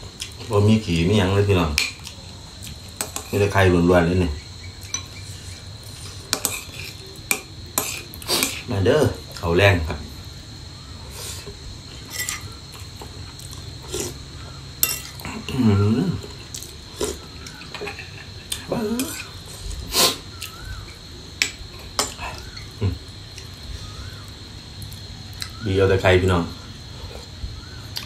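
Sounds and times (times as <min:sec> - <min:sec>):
spoon scraping on ceramic plate: 0:12.1 - 0:12.5
person murmuring: 0:18.5 - 0:19.3.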